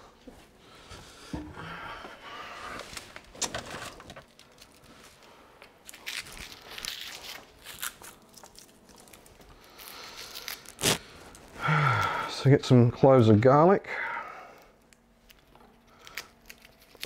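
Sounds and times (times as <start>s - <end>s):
paper crinkling and rustling: 2.7s - 11.6s.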